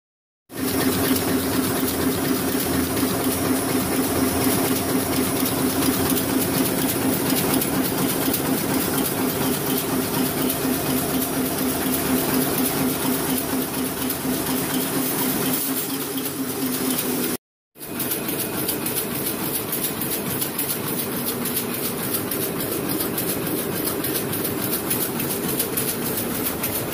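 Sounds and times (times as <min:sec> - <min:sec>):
printing press rapid ticking: 0:00.5 - 0:26.9.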